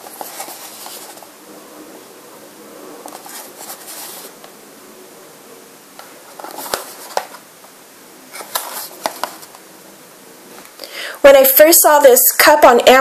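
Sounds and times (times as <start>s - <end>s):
hands rubbing cardboard box: 0.0s - 1.3s, 3.0s - 4.4s.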